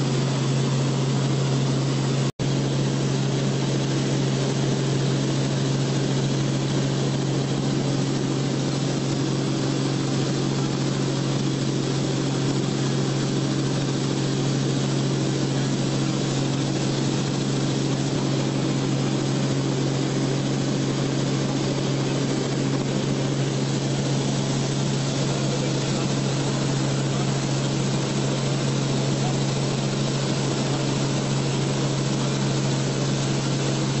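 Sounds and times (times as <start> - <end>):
aircraft engine drone in cabin: 0.0 - 34.0.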